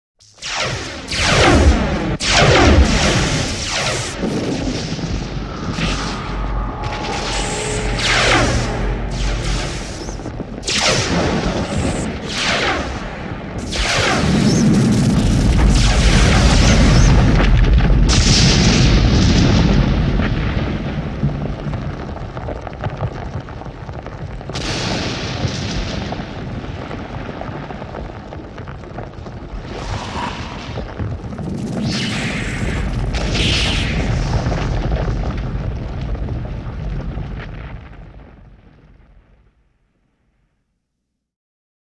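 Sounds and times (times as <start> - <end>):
deep rumble: 2.8 - 13.7, 28.0 - 32.0.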